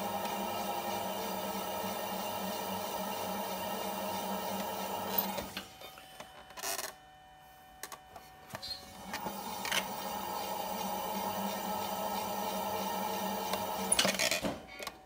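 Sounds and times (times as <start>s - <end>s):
potter's wheel humming: 0.0s - 6.2s, 8.8s - 14.3s.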